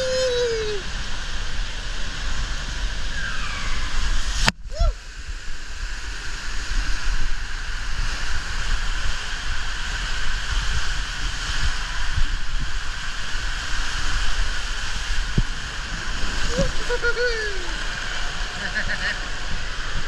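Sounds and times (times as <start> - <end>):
water and air rushing in slide: 0.0 - 20.0
low rumble: 10.4 - 20.0.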